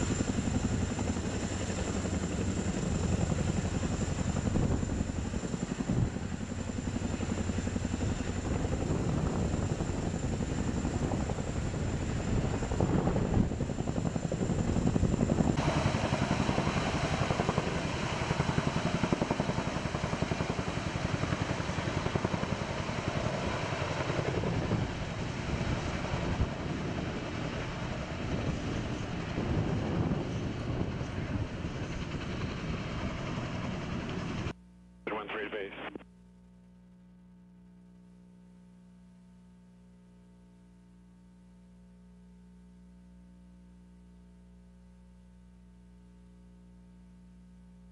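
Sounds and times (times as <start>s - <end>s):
helicopter rotor chop: 0.0s - 34.5s.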